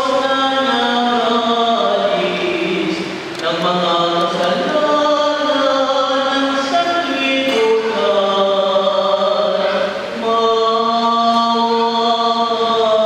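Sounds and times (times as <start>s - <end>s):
choir singing a hymn: 0.0s - 13.0s.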